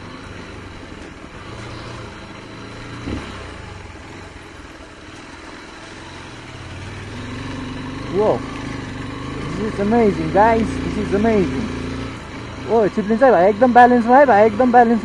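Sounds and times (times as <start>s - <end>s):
motorcycle engine under load: 0.0s - 15.0s.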